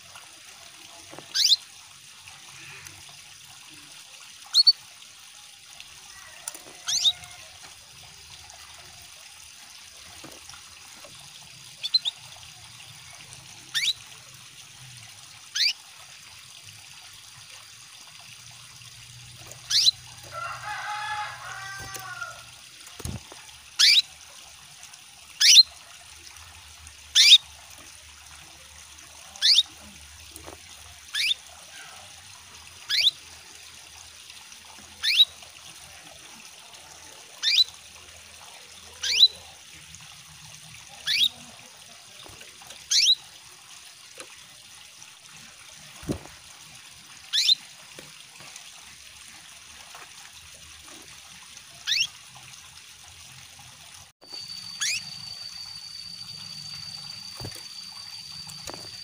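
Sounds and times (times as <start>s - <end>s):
water trickling: 0.0s - 59.0s
canary chirping: 1.3s - 1.6s, 4.5s - 4.7s, 6.8s - 7.3s, 11.8s - 12.2s, 13.7s - 14.0s, 15.5s - 15.8s, 19.6s - 20.0s, 23.8s - 24.0s, 25.4s - 25.6s, 27.2s - 27.4s, 29.4s - 29.7s, 31.1s - 31.4s, 32.9s - 33.2s, 37.4s - 37.7s, 39.0s - 39.4s, 41.0s - 41.4s, 42.9s - 43.2s, 47.3s - 47.6s, 51.8s - 52.1s, 54.2s - 59.0s.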